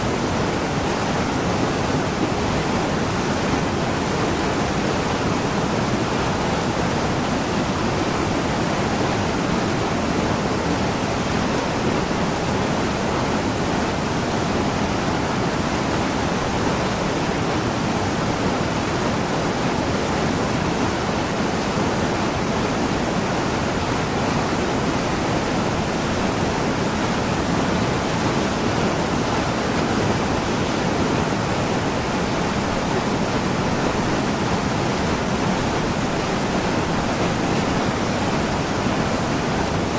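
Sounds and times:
stream waterfall rushing: 0.0s - 39.9s.

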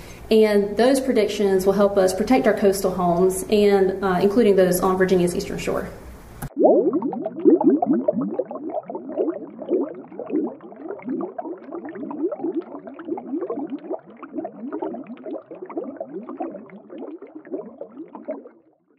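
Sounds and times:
water bubbling and gurgling: 6.5s - 18.9s.

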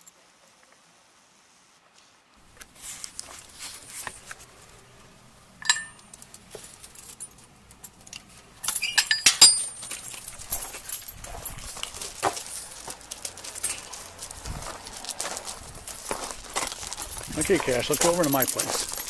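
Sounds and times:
metal gate latch clinking: 5.6s - 6.4s, 7.1s - 10.2s.

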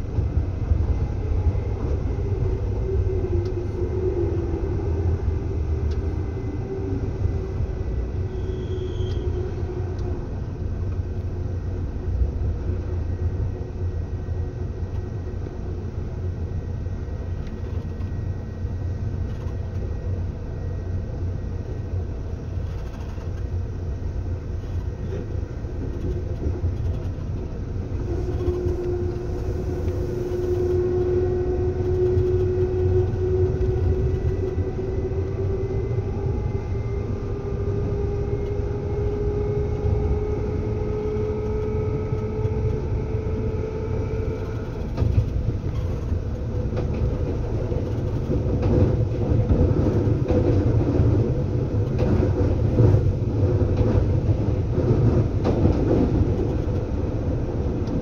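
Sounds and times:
train wheels rumbling on track: 0.0s - 58.0s
humming tone rising in pitch: 28.0s - 45.0s.

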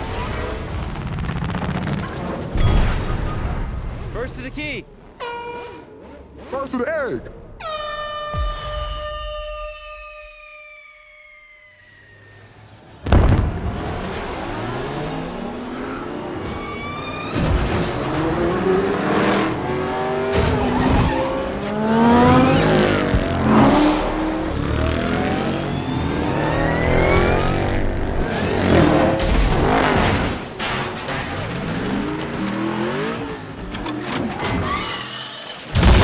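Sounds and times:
race car engines revving: 12.2s - 34.8s
tyre squeal: 16.4s - 18.1s, 23.5s - 27.5s, 33.7s - 35.7s.

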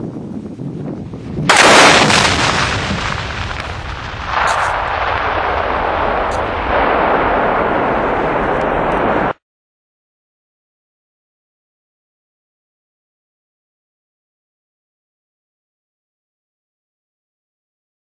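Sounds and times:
huge fireworks explosion: 1.4s - 9.4s.

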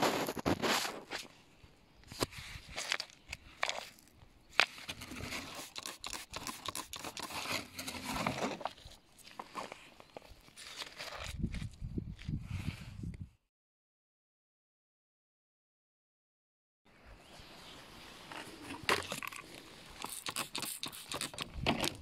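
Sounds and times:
spray bottle hissing: 5.4s - 7.3s, 19.9s - 21.5s.

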